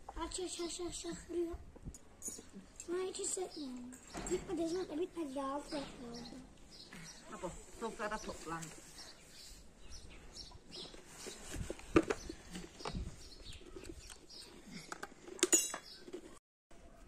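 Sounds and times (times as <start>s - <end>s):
tableware clinking: 15.4s - 15.9s.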